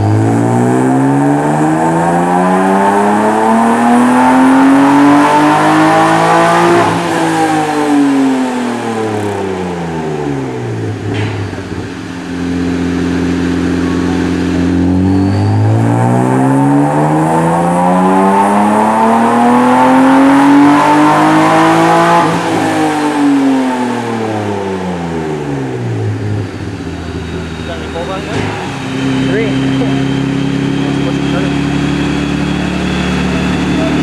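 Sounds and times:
car engine revving on dyno: 0.0s - 34.0s.

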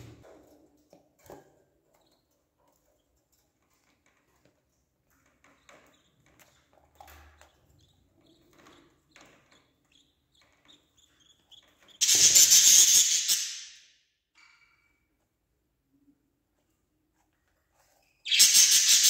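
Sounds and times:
budgerigar chirps: 18.3s - 19.0s.

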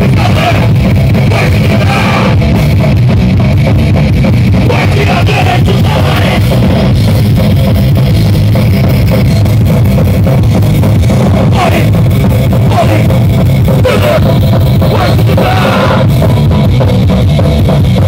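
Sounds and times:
distorted electric guitars: 0.0s - 18.0s
pounding drum kit: 0.0s - 18.0s.

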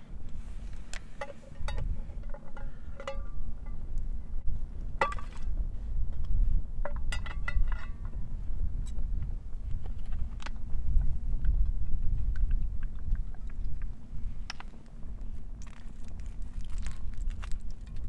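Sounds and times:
steady low rumble: 0.0s - 18.0s
clinks and knocks of hard objects: 1.2s - 3.8s, 5.0s - 5.5s, 6.9s - 8.2s.

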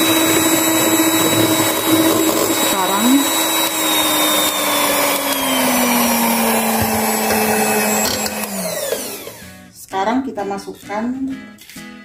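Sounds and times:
electric hand mixer whisking: 0.0s - 9.6s.

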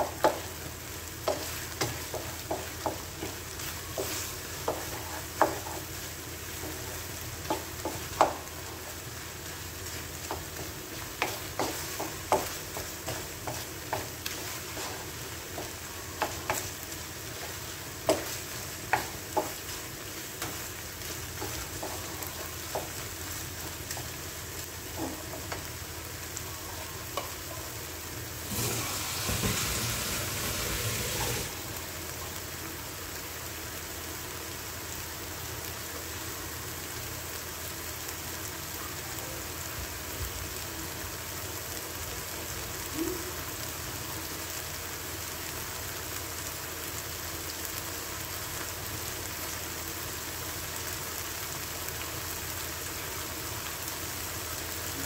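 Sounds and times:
food sizzling in pan: 0.0s - 55.0s
spatula knocking and scraping pan: 1.2s - 6.0s, 7.4s - 8.6s, 10.2s - 24.2s, 28.6s - 30.1s.

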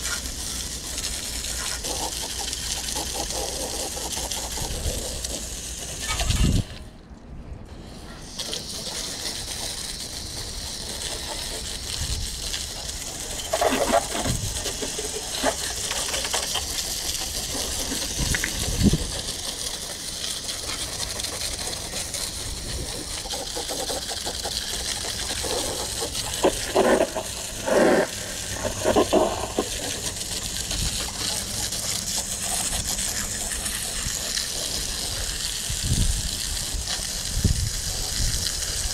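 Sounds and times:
hose nozzle spraying water: 0.0s - 6.8s, 7.7s - 38.9s
water splashing on machine: 8.3s - 38.9s.

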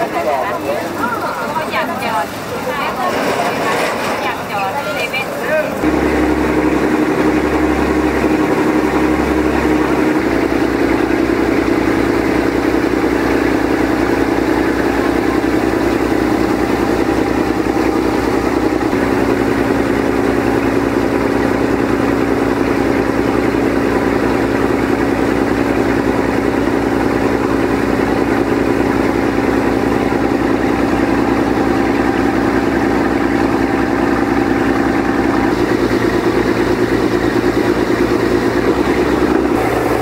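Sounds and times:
churning water: 0.0s - 40.0s
motorboat engine running: 0.0s - 40.0s
wind: 0.0s - 40.0s.

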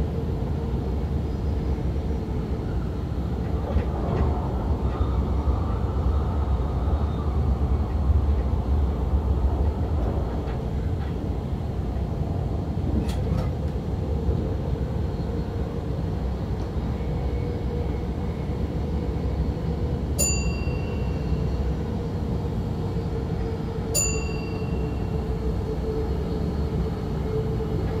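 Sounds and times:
train low rumble: 0.0s - 28.0s
short high dings: 20.2s - 21.1s, 24.0s - 24.8s.

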